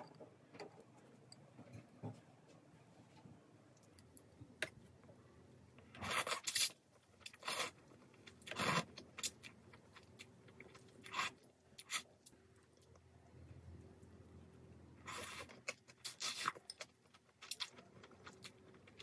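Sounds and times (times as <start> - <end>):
noodles slurping and chewing: 6.0 - 12.7, 15.0 - 19.0.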